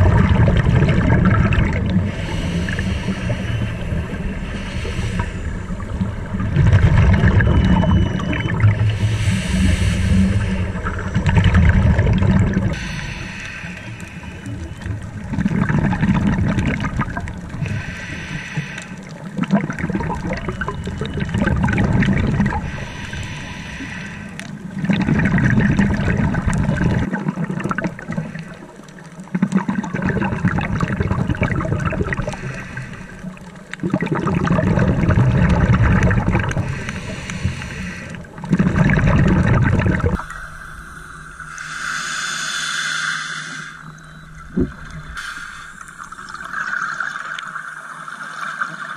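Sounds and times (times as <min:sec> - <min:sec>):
underwater exhaust bubbles: 0:00.0 - 0:48.9
regulator hiss: 0:08.9 - 0:10.8, 0:12.8 - 0:14.9, 0:22.6 - 0:24.4, 0:40.2 - 0:46.5.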